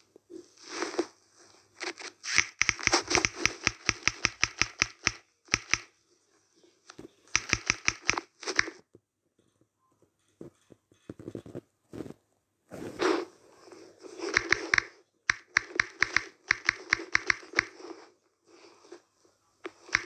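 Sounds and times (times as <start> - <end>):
phone keyboard clicks: 2.3 - 5.9, 7.3 - 8.8, 14.3 - 17.8, 19.7 - 20.0.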